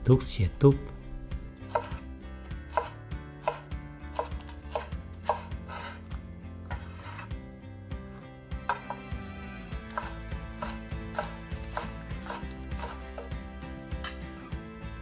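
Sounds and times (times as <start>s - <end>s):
cleaver chopping on cutting board: 1.7s - 2.0s, 2.6s - 6.0s, 6.7s - 7.3s, 8.6s - 9.1s, 9.8s - 13.4s.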